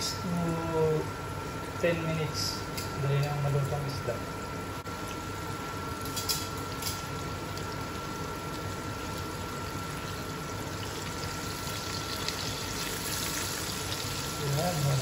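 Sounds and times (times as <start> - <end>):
fish sizzling in hot oil: 4.9 - 15.0.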